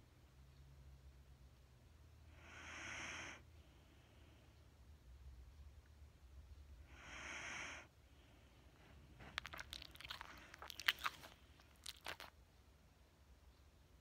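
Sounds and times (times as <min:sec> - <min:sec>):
dog breathing in sleep: 0:02.3 - 0:04.5, 0:06.9 - 0:09.3.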